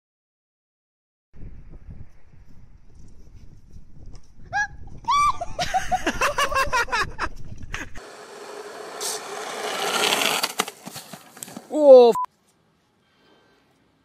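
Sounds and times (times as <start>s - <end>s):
longboard wheels rolling on asphalt: 7.4s - 11.8s.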